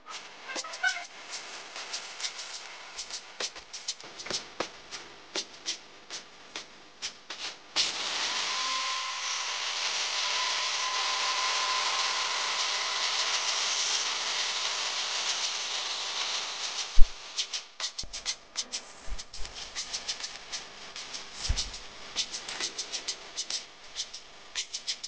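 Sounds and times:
angle grinder cutting chain: 7.9 - 17.0.

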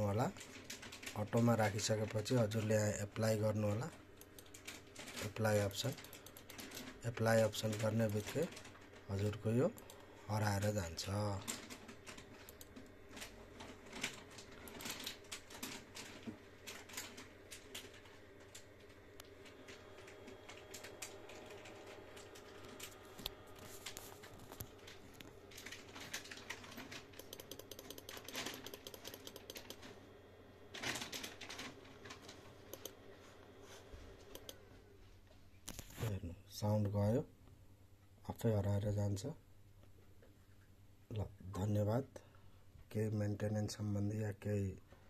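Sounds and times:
fan whirring: 0.0 - 35.0.

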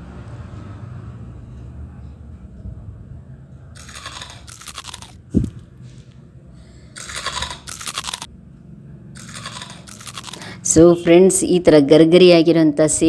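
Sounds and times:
crisp snack crunching in hands: 3.8 - 5.2, 7.0 - 8.3, 9.2 - 10.6.

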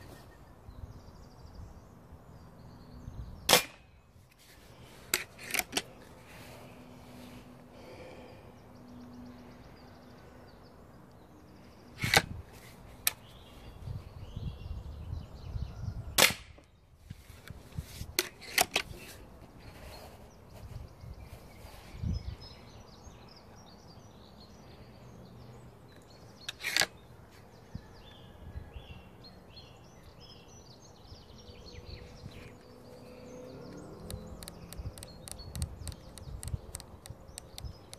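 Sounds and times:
air rifle shots: 3.5 - 3.9, 16.2 - 16.6.

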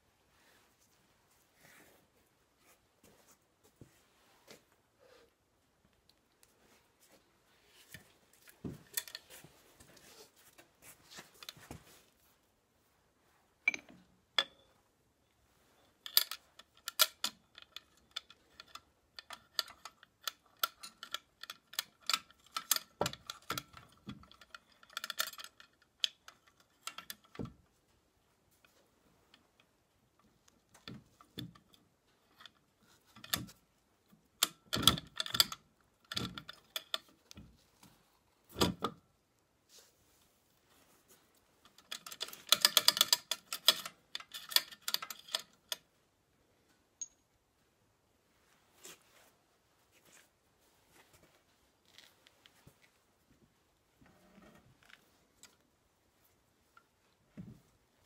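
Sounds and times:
metal parts clinking and knocking: 8.4 - 9.5, 13.7 - 14.8, 16.0 - 27.6, 34.4 - 37.2, 41.6 - 45.8.

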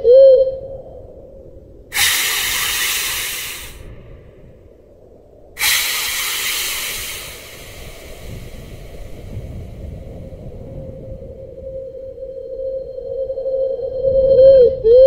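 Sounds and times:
long hisses: 1.9 - 3.9, 5.6 - 10.5.

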